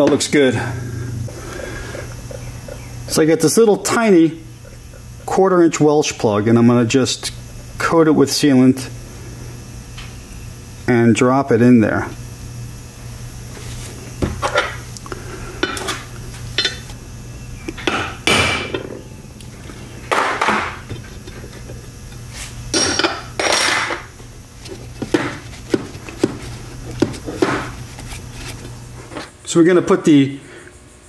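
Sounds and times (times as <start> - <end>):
scraping rustles: 13.5 - 14.6, 24.6 - 29.4.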